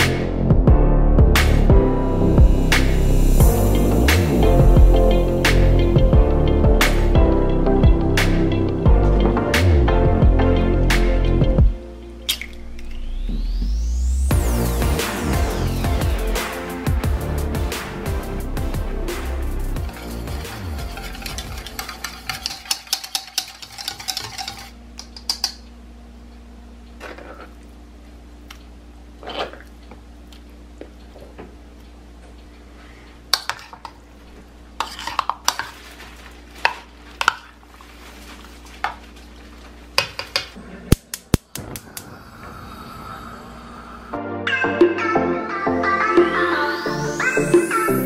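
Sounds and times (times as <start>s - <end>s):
wire whisk clinking in bowl: 19.9s - 25.6s
gas burner hissing: 40.6s - 44.2s.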